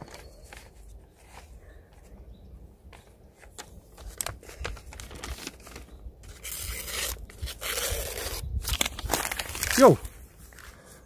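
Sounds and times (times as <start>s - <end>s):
paper tearing and rustling: 4.0s - 10.2s.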